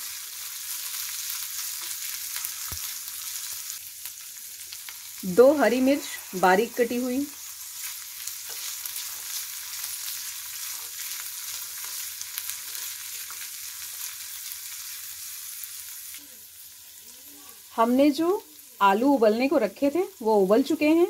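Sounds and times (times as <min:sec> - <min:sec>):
vegetables sizzling in a frying pan: 0:00.0 - 0:21.0
spatula scraping a pan: 0:07.7 - 0:13.0.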